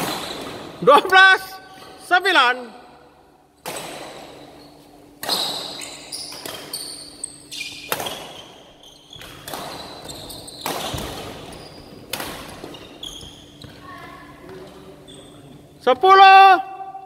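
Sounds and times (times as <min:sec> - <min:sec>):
shoe squeaks on court floor: 0:04.3 - 0:13.9, 0:15.0 - 0:15.5
racket striking shuttlecock: 0:05.2 - 0:06.8, 0:07.8 - 0:08.4, 0:09.2 - 0:11.4, 0:12.0 - 0:12.7.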